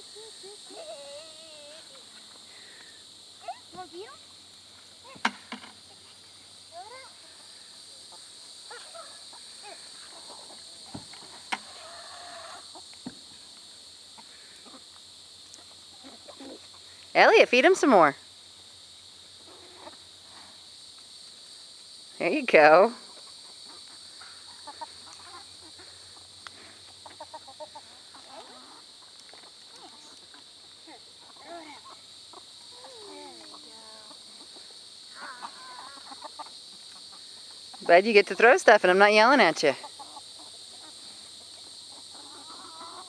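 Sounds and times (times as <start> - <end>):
chickens clucking: 7.4 - 12.9, 14.0 - 16.9, 19.4 - 20.2, 23.0 - 38.0, 39.7 - 43.0.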